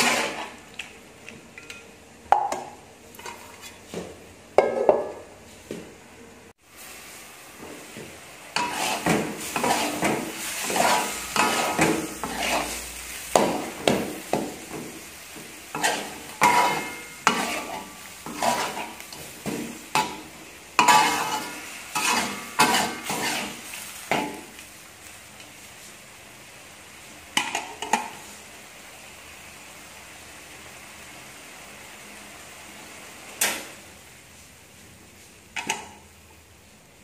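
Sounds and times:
metal spatula scraping wok: 0.0s - 0.7s, 8.5s - 14.8s, 15.4s - 24.5s
food sizzling: 0.0s - 4.4s, 6.5s - 37.0s.

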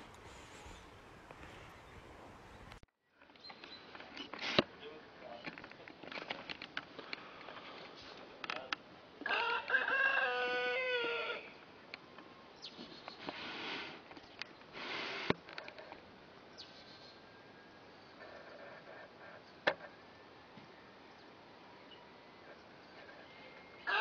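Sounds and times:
faint clicks: 0.0s - 1.8s
rooster crowing: 9.2s - 11.6s.

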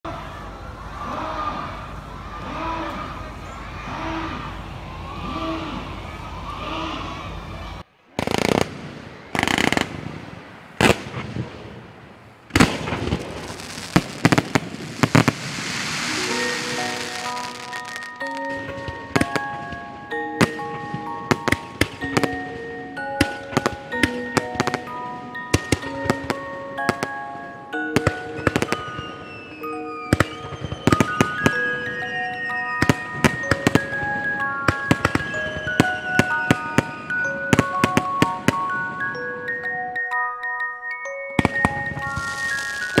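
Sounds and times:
steady hiss: 8.0s - 18.0s
fireworks bangs: 8.1s - 38.9s, 41.4s - 43.0s
chime-like music: 13.6s - 43.0s.

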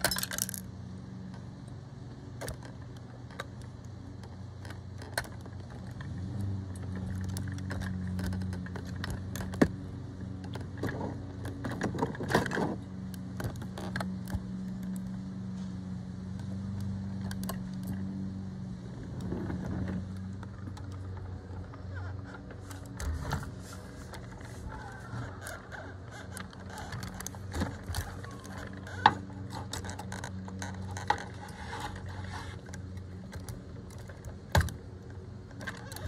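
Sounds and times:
toy truck clicks and rattles: 0.0s - 0.7s, 24.8s - 34.3s, 35.5s - 36.0s
steady low hum: 0.0s - 36.0s.

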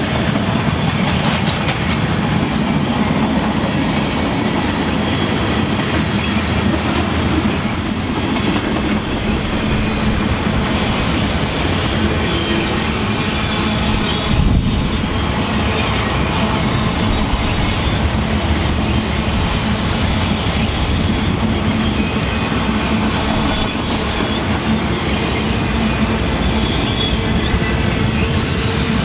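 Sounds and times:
freight train rumbling past: 0.0s - 29.0s
high wheel squeal: 9.2s - 29.0s.

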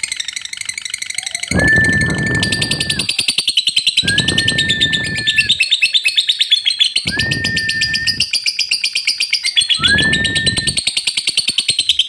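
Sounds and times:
whistle-like tone with low rush: 1.5s - 3.3s, 4.0s - 5.6s, 7.1s - 8.3s, 9.8s - 10.8s.

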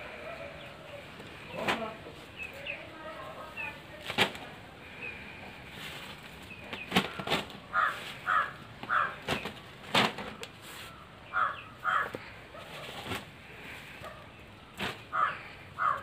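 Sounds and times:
branches rustling onto beds: 0.4s - 16.0s
bird calling: 4.8s - 9.6s, 10.2s - 16.0s.

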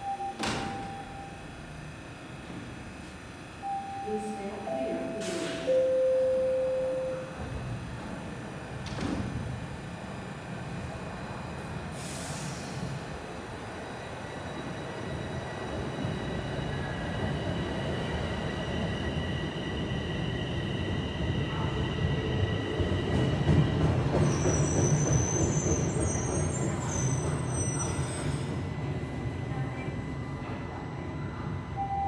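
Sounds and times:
train wheels rumbling on rail: 7.4s - 31.5s.

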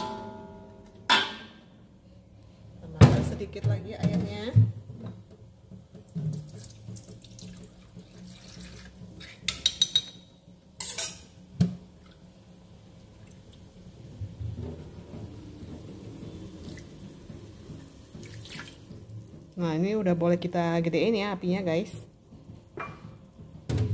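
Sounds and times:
broth simmering in a wok: 4.7s - 23.9s
utensils clinking against wok: 9.4s - 11.4s.

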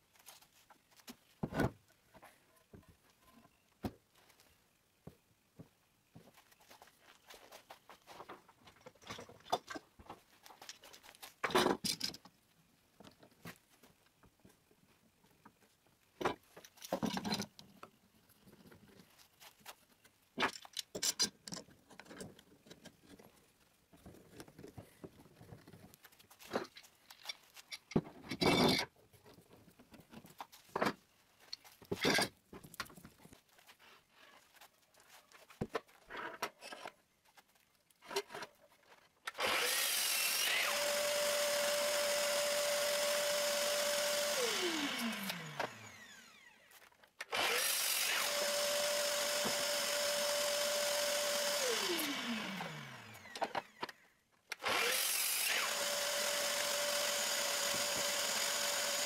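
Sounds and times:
miter saw motor whining: 39.3s - 46.6s, 47.3s - 53.8s, 54.6s - 59.0s.

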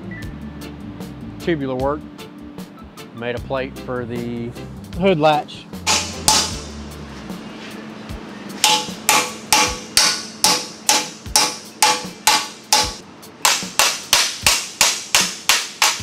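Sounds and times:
hammer striking steel plate: 5.8s - 6.7s, 8.6s - 16.0s.

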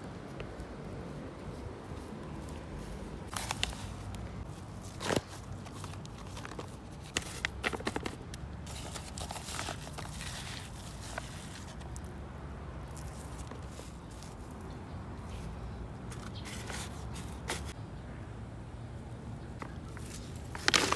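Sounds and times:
rustles of soil and plastic: 0.0s - 17.8s, 19.4s - 20.9s
hand scooping and pressing soil: 1.4s - 12.2s, 12.8s - 17.8s, 19.9s - 20.9s.

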